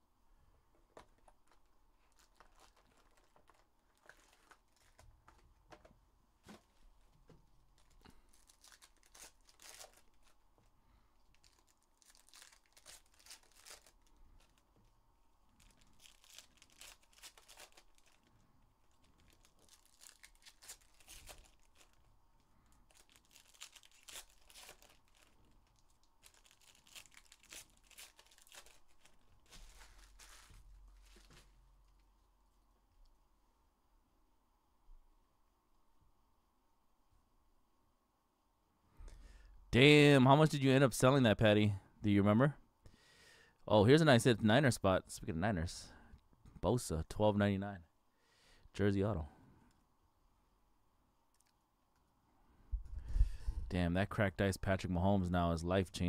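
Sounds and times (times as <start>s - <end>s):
cards shuffled by hand: 0.9s - 6.8s, 7.7s - 10.4s, 11.3s - 14.6s, 15.6s - 18.3s, 18.9s - 22.0s, 22.7s - 32.0s
wrappers tearing and crinkling: 1.4s - 5.4s, 7.7s - 10.4s, 11.2s - 14.7s, 15.5s - 32.0s.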